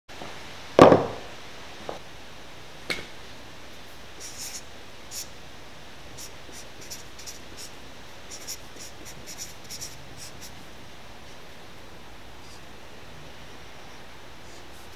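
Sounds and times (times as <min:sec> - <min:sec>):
marker scratching across paper: 0:04.2 - 0:05.3, 0:06.2 - 0:10.6.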